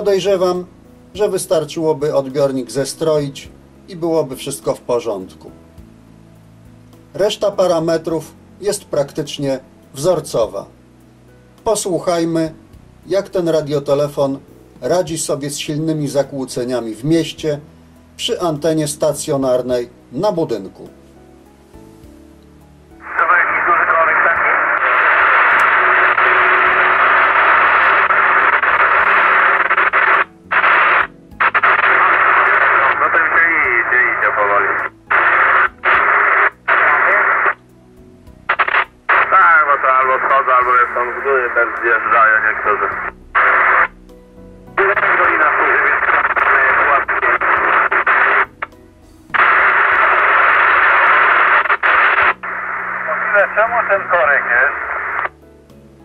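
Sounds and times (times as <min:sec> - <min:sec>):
radio static: 0:23.0 - 0:37.6, 0:38.5 - 0:43.9, 0:44.8 - 0:48.7, 0:49.4 - 0:55.3.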